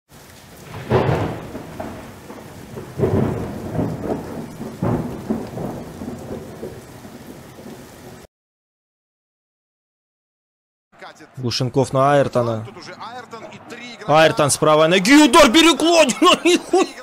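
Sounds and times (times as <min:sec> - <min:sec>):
rain hiss: 0:00.1 - 0:08.3
thunder cracks and rumble: 0:00.5 - 0:08.3.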